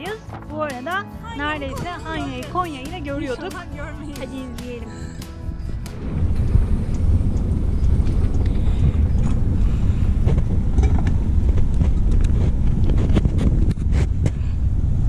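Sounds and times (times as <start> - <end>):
wind buffeting microphone: 5.2 - 15.0.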